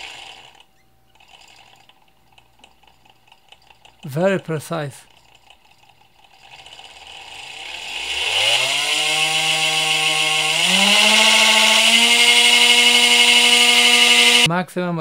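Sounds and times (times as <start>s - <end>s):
electric motor whine: 0.0s - 0.7s, 6.4s - 14.5s.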